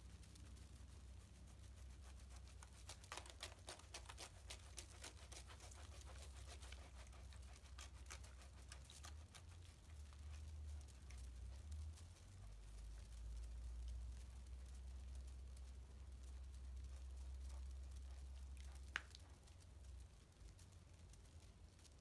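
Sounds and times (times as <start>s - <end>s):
fizzing foam and bubbles popping: 18.3s - 22.0s.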